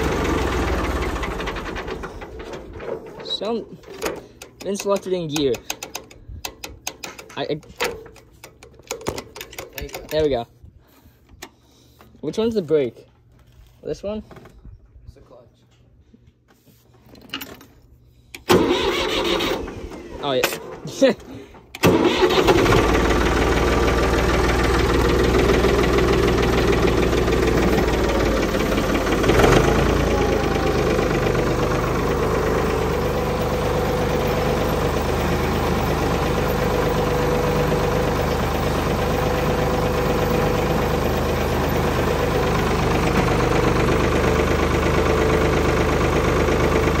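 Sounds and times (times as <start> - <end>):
tractor engine idling: 0.0 - 8.7, 18.4 - 20.1, 20.9 - 47.0.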